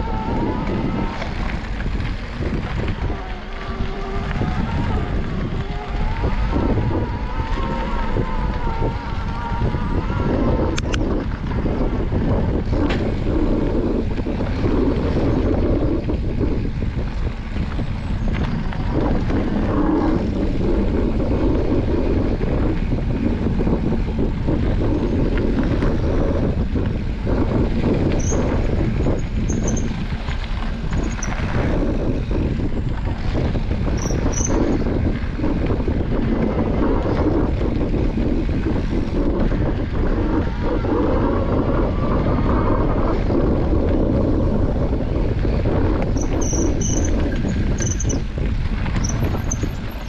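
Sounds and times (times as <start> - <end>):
bike tyre rumble: 0.0 - 50.0
wind noise on microphone: 0.0 - 50.0
bike knocks and rattles: 9.1 - 40.6, 43.2 - 50.0.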